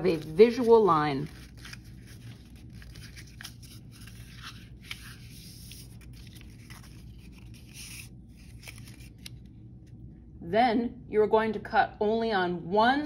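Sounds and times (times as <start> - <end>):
paper rustling and crinkling: 0.0 - 9.5
low steady hum: 0.0 - 13.0.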